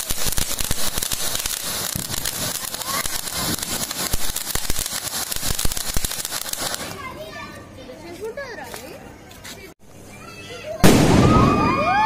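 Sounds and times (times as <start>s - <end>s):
firework fountain hissing and crackling: 0.0s - 7.3s.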